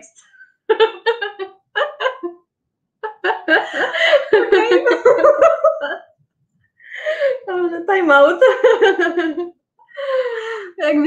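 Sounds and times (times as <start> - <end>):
women laughing: 0.6 - 2.4, 3.0 - 6.1, 8.2 - 11.0.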